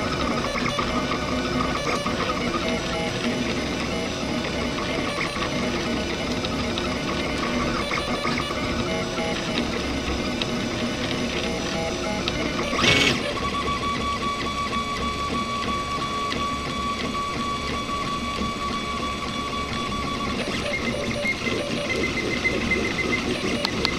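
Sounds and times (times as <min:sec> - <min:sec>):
stepper motors whining: 0:00.0 - 0:23.9.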